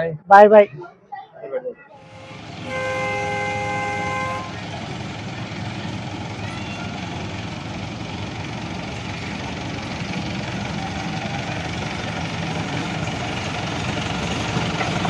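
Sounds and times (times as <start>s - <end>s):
engine rumble: 1.9s - 15.0s
train horn two-note blast: 2.0s - 4.7s.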